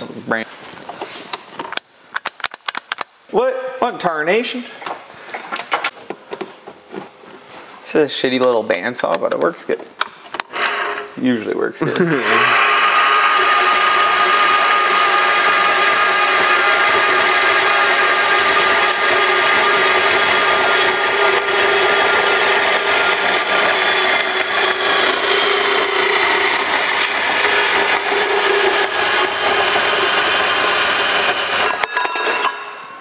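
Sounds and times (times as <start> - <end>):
bandsaw cutting metal: 10.5 - 11.1, 11.9 - 33.0.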